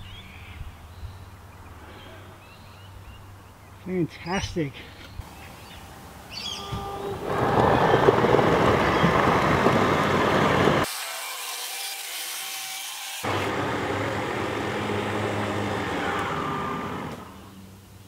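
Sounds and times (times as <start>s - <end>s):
electric slide-out motor running: 13.2s - 17.6s.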